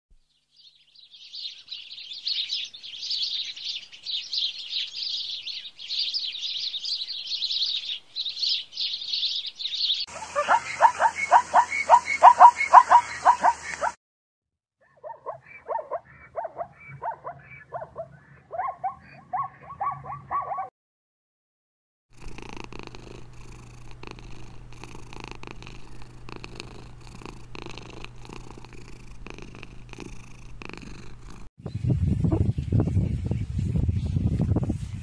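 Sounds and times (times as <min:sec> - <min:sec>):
rapid short calls: 0:10.1 - 0:14.0
kitten purring: 0:22.2 - 0:31.5.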